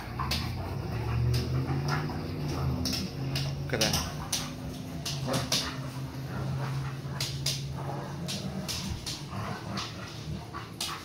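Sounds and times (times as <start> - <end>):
sharp clicks and knocks: 0.0 - 6.2
dogs growling: 0.0 - 11.0.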